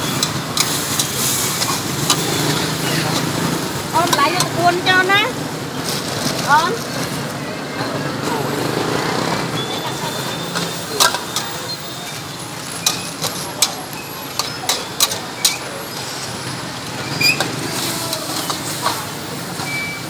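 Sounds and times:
steady background noise: 0:00.0 - 0:20.0
ladle scraping wok: 0:00.1 - 0:04.6, 0:10.1 - 0:20.0.

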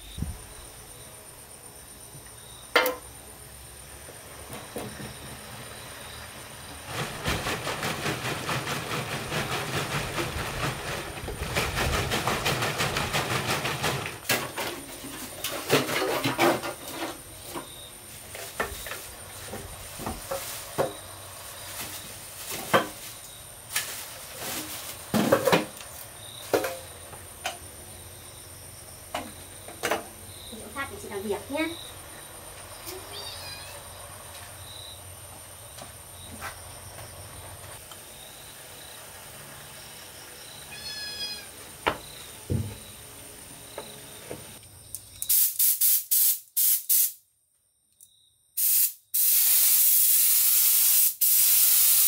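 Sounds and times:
cans and tools knocking: 0:02.8 - 0:03.1.

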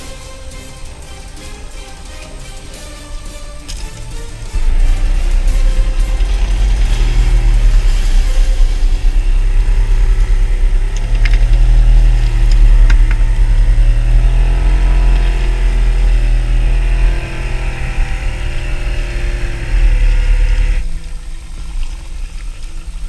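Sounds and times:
boat engine humming: 0:00.0 - 0:23.0.

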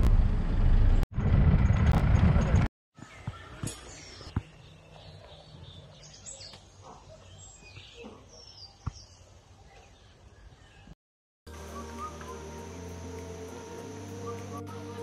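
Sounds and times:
low forest rumble: 0:00.0 - 0:02.7
birds chirping: 0:03.0 - 0:11.0
music: 0:11.5 - 0:15.0.

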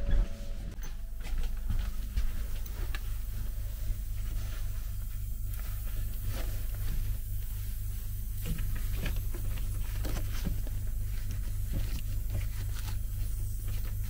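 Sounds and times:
vacuum pump humming: 0:00.0 - 0:14.0.

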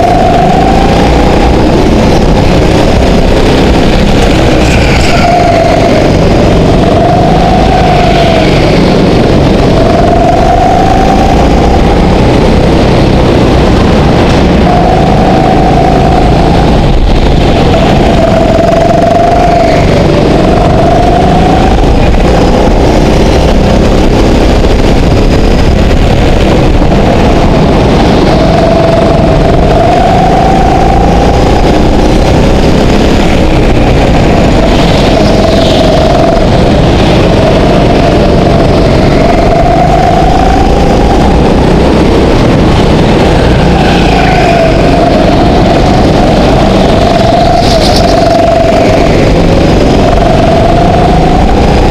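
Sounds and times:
go-kart engine racing: 0:00.0 - 0:51.9.

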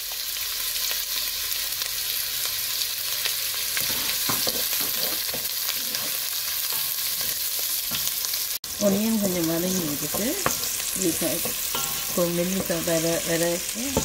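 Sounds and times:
onion sizzling in oil: 0:00.0 - 0:14.0
wooden spatula scraping pot: 0:03.8 - 0:08.1.

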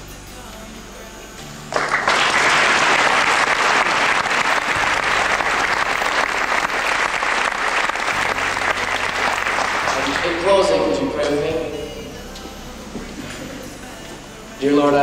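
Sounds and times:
audience applauding: 0:01.7 - 0:11.0.

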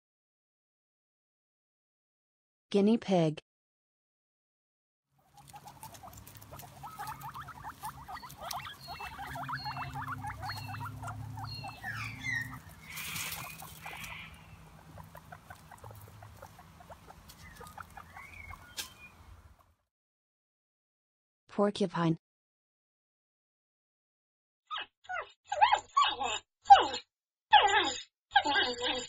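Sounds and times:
guinea pigs squeaking: 0:05.2 - 0:19.7, 0:24.7 - 0:29.0
brief rustle: 0:18.7 - 0:19.1.

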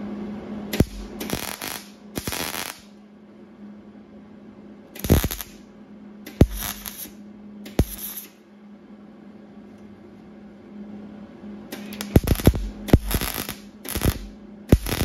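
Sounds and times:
welder sharp click: 0:00.7 - 0:02.9, 0:05.0 - 0:05.6, 0:06.2 - 0:08.4, 0:11.7 - 0:15.0
welding arc crackling: 0:00.7 - 0:02.9, 0:05.0 - 0:05.6, 0:06.3 - 0:07.1, 0:07.7 - 0:08.3, 0:11.8 - 0:15.0.

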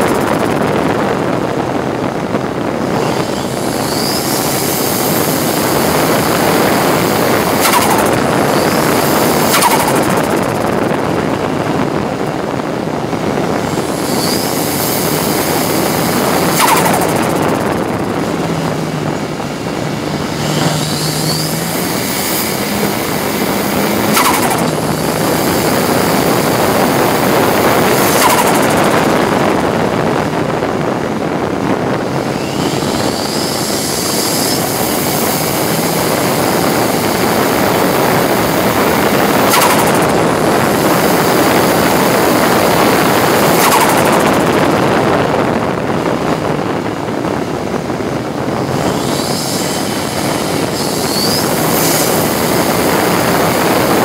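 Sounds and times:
racing car engine running hard: 0:00.0 - 0:54.0
rising whines: 0:00.0 - 0:54.0
road and wind noise: 0:00.0 - 0:54.0
sharp cracks: 0:02.9 - 0:11.4, 0:13.4 - 0:29.9, 0:32.2 - 0:44.9.

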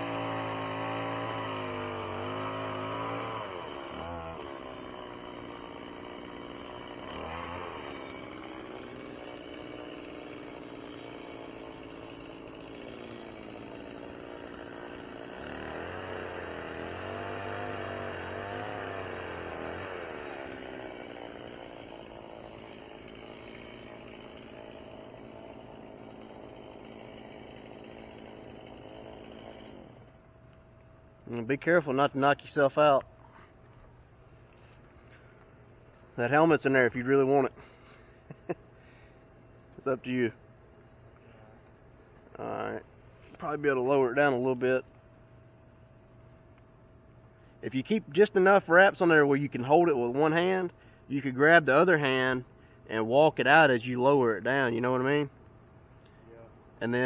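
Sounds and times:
chainsaw engine revving: 0:00.0 - 0:30.2.

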